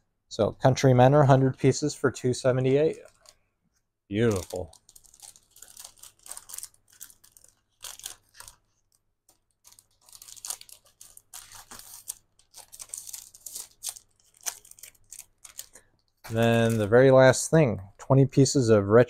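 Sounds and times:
paper rustling and crinkling: 2.5 - 3.5, 4.2 - 17.1.

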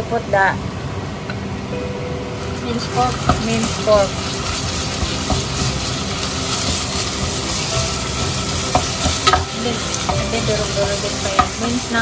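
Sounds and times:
meat sizzling in hot oil: 2.4 - 12.0
wooden spatula stirring: 2.8 - 12.0.

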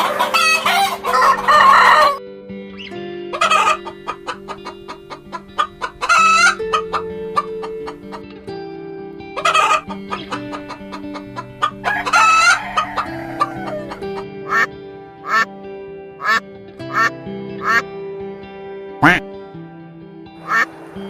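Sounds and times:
rooster crowing: 0.0 - 2.2, 11.6 - 14.7
background music of held notes: 0.0 - 21.0
bird squawk: 2.8 - 7.8, 11.6 - 15.5, 16.2 - 17.8, 20.4 - 20.7
short honking calls: 19.0 - 19.2.

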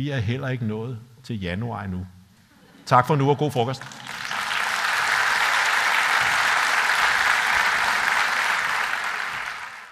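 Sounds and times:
audience applauding: 3.8 - 9.9.

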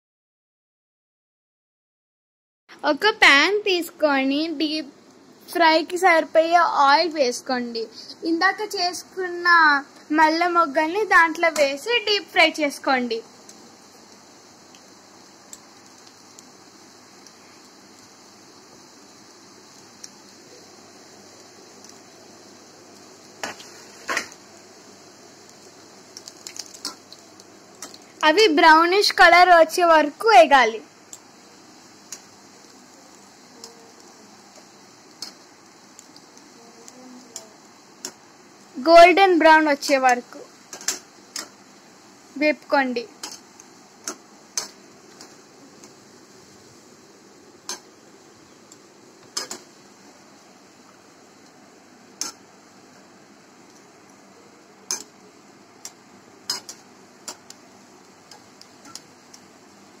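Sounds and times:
dough sizzling in hot oil: 2.8 - 60.0.

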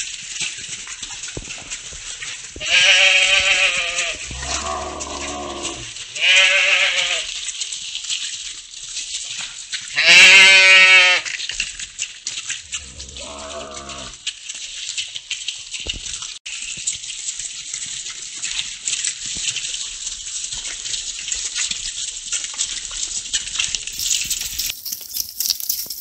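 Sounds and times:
hoof steps on cobblestones: 0.0 - 6.4, 16.8 - 26.0
sheep bleating: 2.6 - 7.3, 10.0 - 11.2, 12.8 - 14.1.

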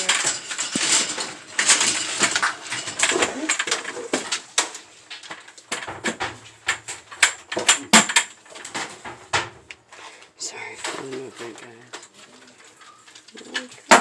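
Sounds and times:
electronic units clattering: 0.0 - 9.9.

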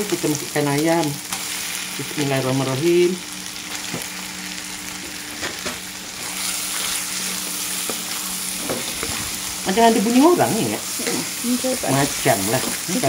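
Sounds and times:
chicken sizzling in a wok: 0.0 - 13.0.

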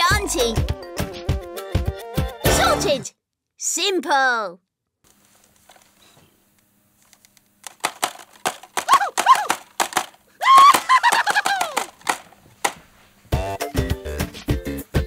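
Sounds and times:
sharp clicks: 7.1 - 12.8.

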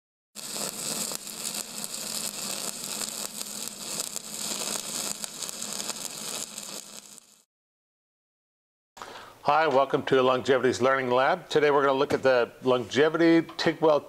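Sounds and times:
crackling static hiss: 0.4 - 7.5.

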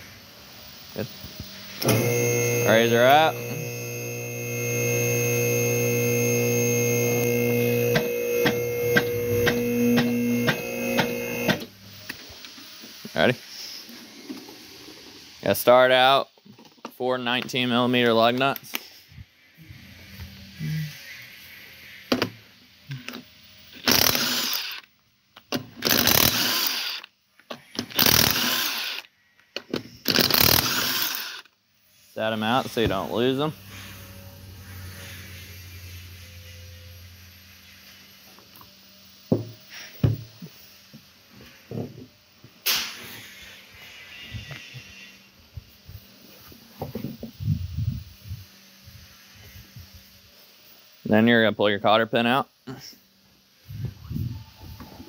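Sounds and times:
hydraulic pump motor running: 1.4 - 12.1, 23.8 - 24.8, 25.8 - 27.0, 27.8 - 29.0, 30.0 - 31.4, 32.2 - 37.2
impact wrench spinning off nuts: 1.8 - 11.7, 23.7 - 24.9, 25.8 - 27.1, 27.8 - 29.1, 30.0 - 31.5.

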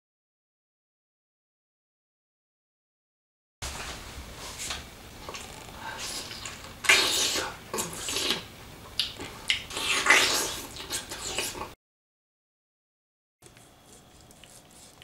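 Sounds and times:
man biting and chewing: 5.2 - 11.7, 13.4 - 15.0.

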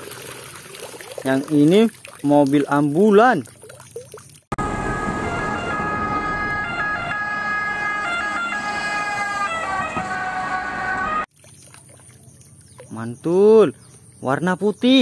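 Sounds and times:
road and engine noise: 4.4 - 14.8
ambulance siren passing: 4.6 - 11.3.

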